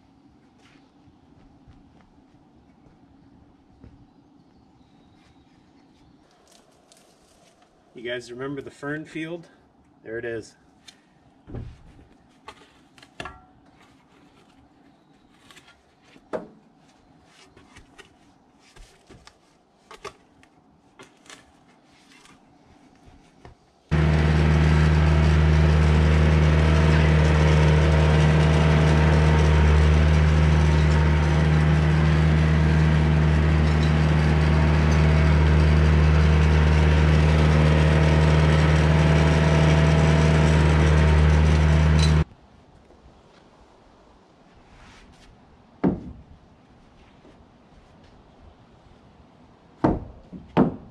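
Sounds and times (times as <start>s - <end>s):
spade scraping soil: 23.9s - 42.3s
tractor engine droning: 23.9s - 42.3s.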